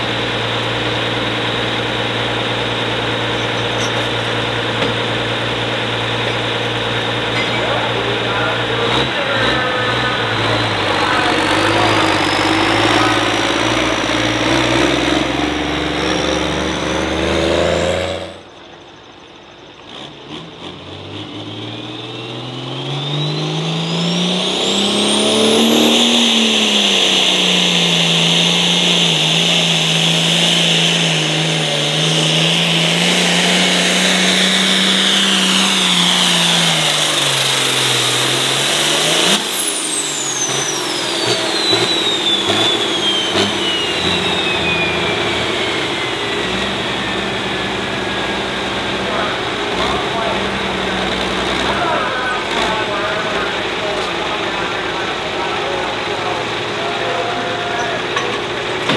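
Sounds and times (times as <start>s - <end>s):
diesel tractor engine under load: 0.0s - 58.9s
rising turbo whistle: 22.8s - 31.0s, 34.3s - 47.9s.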